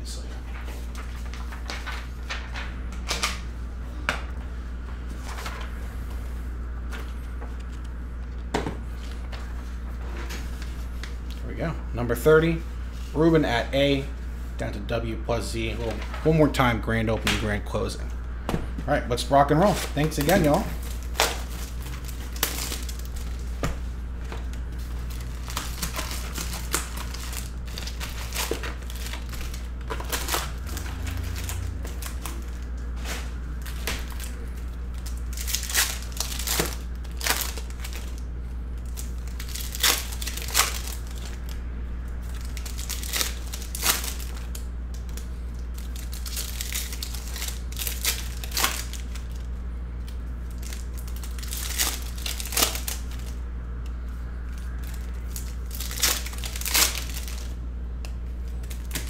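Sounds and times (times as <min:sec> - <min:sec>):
steady low hum: 0:00.0 - 0:59.0
card pack wrappers crinkling and tearing: 0:19.5 - 0:23.6, 0:24.2 - 0:41.6, 0:42.2 - 0:53.4, 0:54.0 - 0:57.6, 0:58.3 - 0:59.0.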